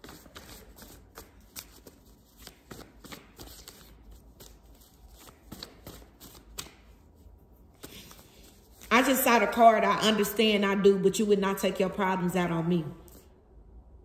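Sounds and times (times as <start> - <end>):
cards being shuffled: 0.0 - 7.1, 7.8 - 8.9.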